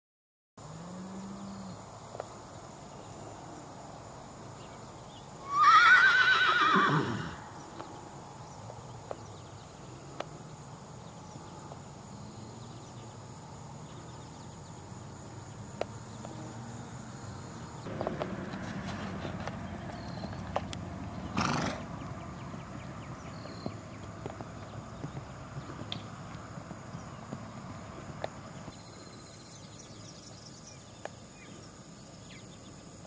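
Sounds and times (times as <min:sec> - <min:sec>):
horse whinnying: 0:05.4 - 0:07.5, 0:21.4 - 0:21.8.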